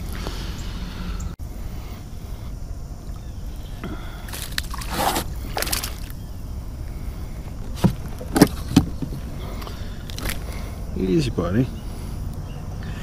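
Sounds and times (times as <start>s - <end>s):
steady low rumble: 0.0s - 13.0s
fish splashing at water surface: 4.3s - 6.1s.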